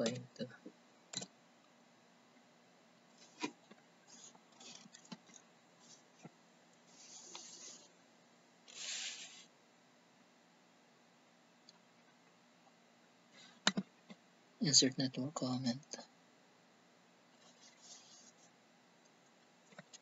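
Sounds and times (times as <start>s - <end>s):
computer clicks: 1.1s - 1.3s
short hissy rustles: 8.7s - 9.5s.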